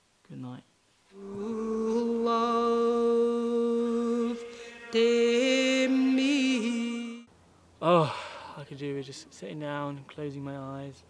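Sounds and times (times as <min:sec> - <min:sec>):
music of long held chords: 0:01.2 - 0:07.3.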